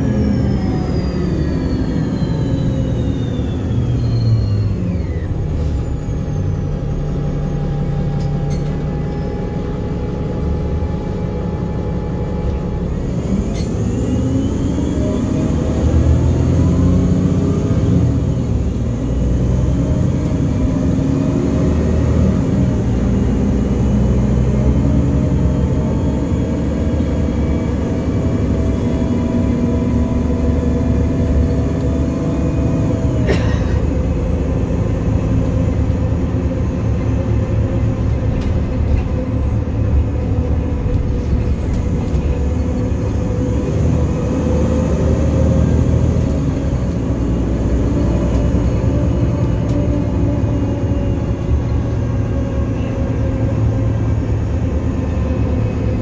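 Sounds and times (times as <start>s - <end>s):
bus engine and road rumble: 0.0s - 56.0s.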